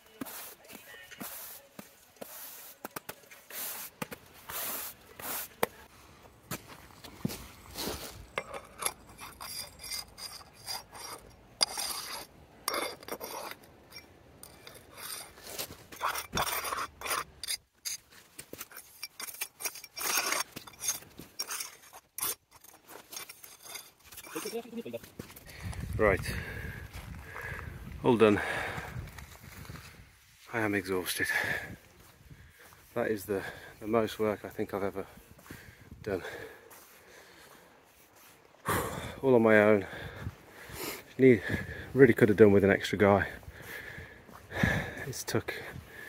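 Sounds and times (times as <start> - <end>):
broom scraping wet stone: 0.0 - 5.9, 7.8 - 25.1.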